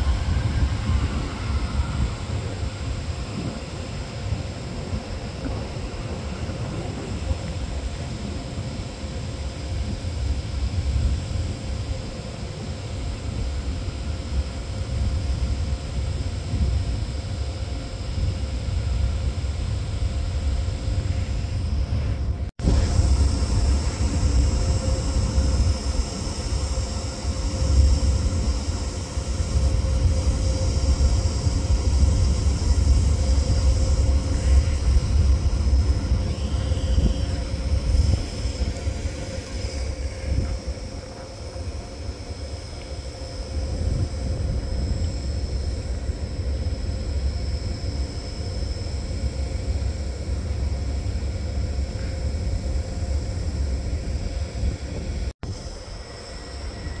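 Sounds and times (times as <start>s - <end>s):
high whining tones: 0.0s - 9.5s
train rumbling: 0.0s - 57.0s.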